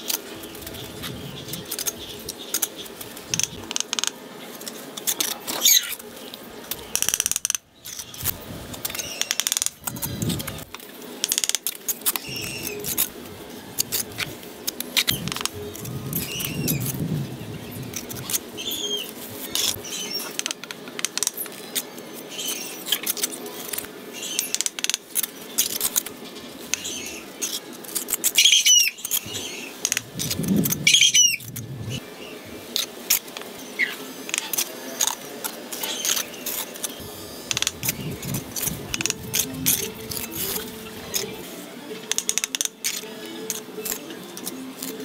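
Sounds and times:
trowel clicks and scrapes: 42.1 - 45.0.

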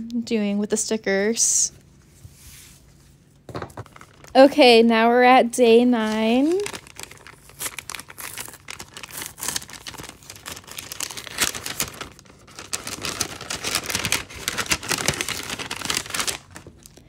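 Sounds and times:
paper envelope crinkling: 3.5 - 4.7, 5.8 - 17.0
paper tearing: 6.0 - 16.7.

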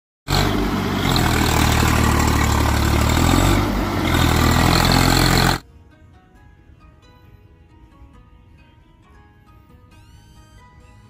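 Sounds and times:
tractor diesel engine running: 0.3 - 5.6.

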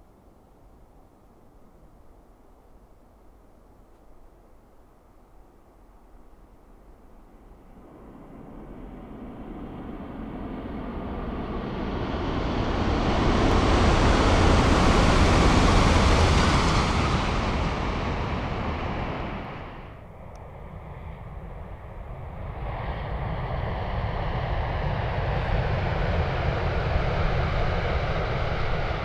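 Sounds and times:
high-speed train rushing past: 7.3 - 29.0.

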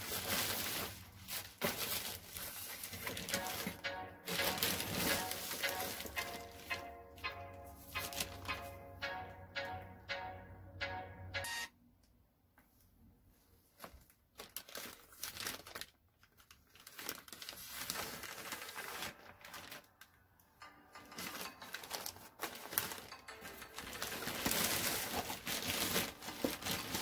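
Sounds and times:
plastic bag crinkling and rustling: 0.0 - 6.9, 13.6 - 20.3, 21.0 - 27.0
music: 3.1 - 11.7, 18.7 - 27.0.

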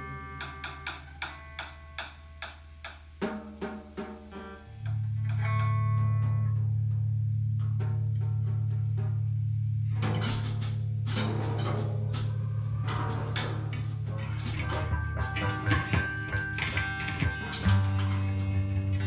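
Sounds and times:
scattered guitar notes: 0.0 - 3.1, 4.3 - 7.1, 9.9 - 19.0
crashing drums and cymbals: 10.0 - 19.0
drum taps: 12.9 - 19.0.

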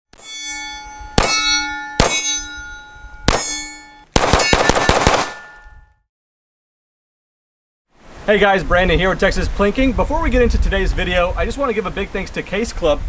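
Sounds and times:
steel plate ringing: 0.1 - 6.0
pistol shots: 1.2 - 1.4, 2.0 - 2.3, 3.3 - 5.6.

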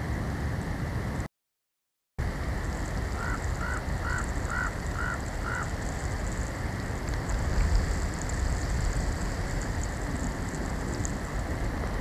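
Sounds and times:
wind rumble and hiss: 0.0 - 1.3, 2.2 - 12.0
bird call notes: 3.2 - 5.7.

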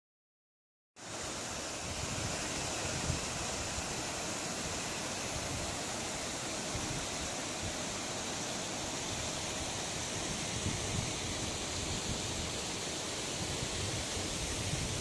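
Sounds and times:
paddle wheel aerators churning water: 1.0 - 15.0.

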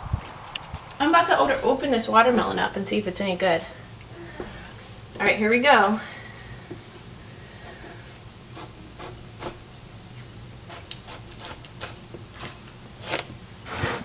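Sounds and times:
knife cutting watermelon rind: 10.7 - 13.5.

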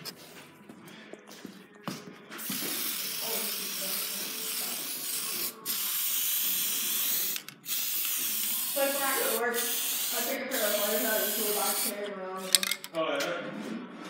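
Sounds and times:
spray paint can hissing: 2.4 - 12.0
spray can clicks: 4.8 - 9.0.

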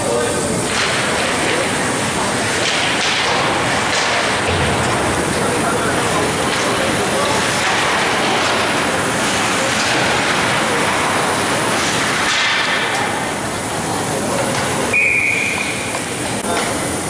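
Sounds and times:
ice rink hockey game noise: 0.0 - 17.0
spectators chattering: 0.0 - 17.0
referee's whistle: 14.9 - 15.9.

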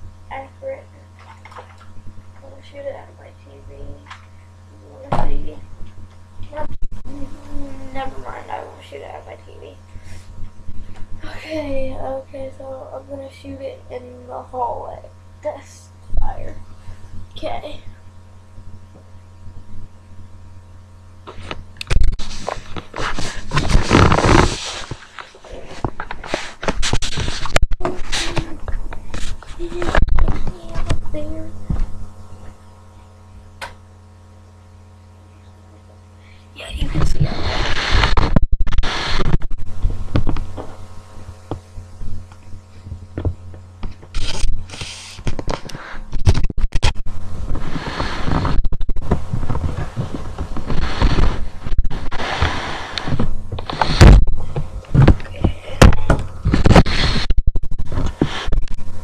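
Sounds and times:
faint low hum: 0.0 - 59.0
microphone handling noise: 18.4 - 34.3, 36.7 - 59.0.

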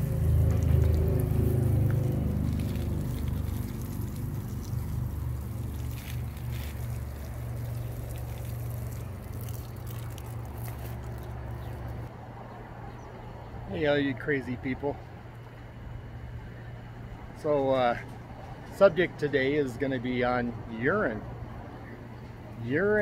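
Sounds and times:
liquid splashing from watering spout: 0.0 - 12.1
low steady hum: 0.0 - 22.6.

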